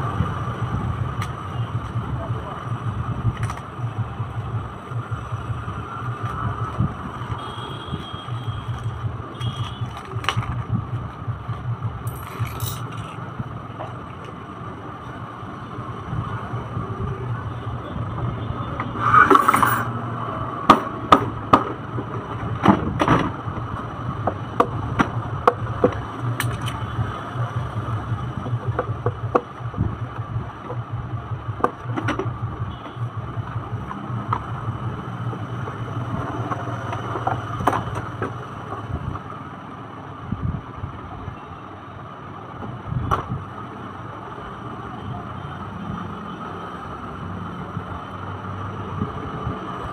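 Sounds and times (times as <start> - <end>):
plastic toy parts clicking: 26.4 - 26.8.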